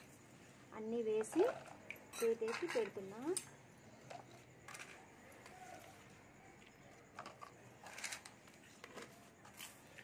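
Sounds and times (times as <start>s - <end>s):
soft rustles and scrapes on concrete: 4.0s - 10.0s.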